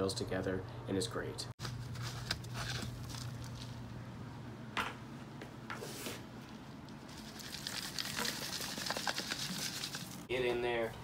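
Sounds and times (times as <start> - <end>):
loose soil pouring: 7.1 - 10.3.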